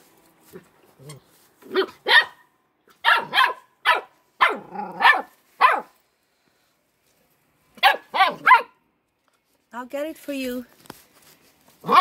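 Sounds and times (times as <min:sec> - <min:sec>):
dog barking: 0:01.7 - 0:06.0, 0:07.8 - 0:08.8.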